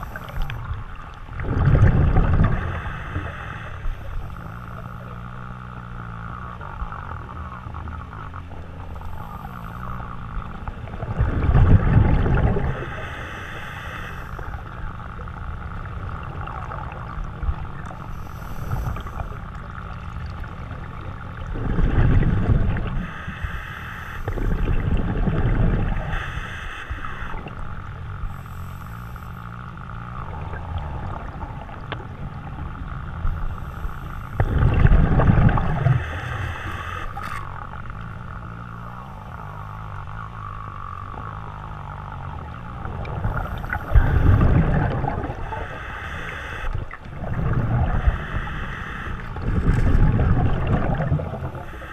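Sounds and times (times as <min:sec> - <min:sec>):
exhaled bubbles burbling: 0:00.0 - 0:05.1, 0:06.2 - 0:13.2, 0:14.3 - 0:23.3, 0:24.2 - 0:26.3, 0:30.0 - 0:38.1, 0:38.9 - 0:51.9
muffled water noise: 0:00.0 - 0:51.9
regulator breathing hiss: 0:02.5 - 0:04.7, 0:12.8 - 0:14.5, 0:18.0 - 0:19.3, 0:23.0 - 0:24.6, 0:26.0 - 0:27.4, 0:35.8 - 0:37.4, 0:45.4 - 0:46.9, 0:47.9 - 0:49.3, 0:51.5 - 0:51.9.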